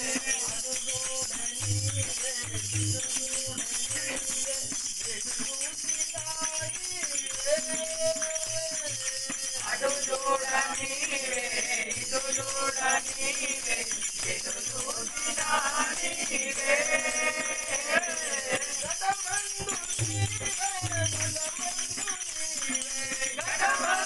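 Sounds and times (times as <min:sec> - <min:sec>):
hand drum: 0:00.0 - 0:04.8, 0:19.6 - 0:22.1
group singing devotional song: 0:00.0 - 0:05.7, 0:07.4 - 0:24.0
jingling hand percussion: 0:00.0 - 0:24.0.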